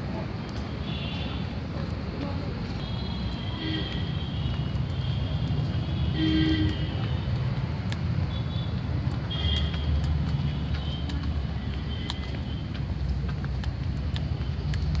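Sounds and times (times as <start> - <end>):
distant traffic rumbling: 0.0 - 15.0
vehicle horns honking: 2.8 - 7.2, 9.3 - 10.0.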